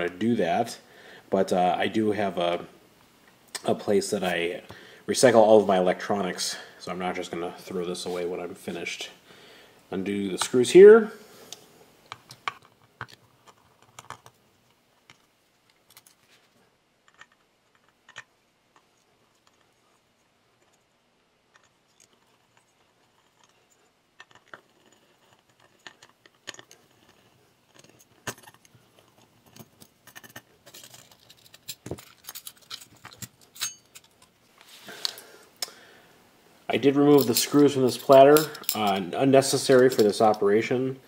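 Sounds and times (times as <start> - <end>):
metal parts rattling: 24.2 - 34.4, 37.1 - 40.4.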